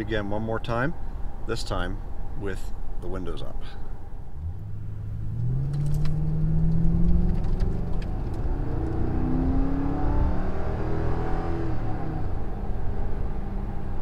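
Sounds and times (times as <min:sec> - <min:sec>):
road rumble: 0:00.0 - 0:14.0
car exhaust accelerating: 0:04.2 - 0:14.0.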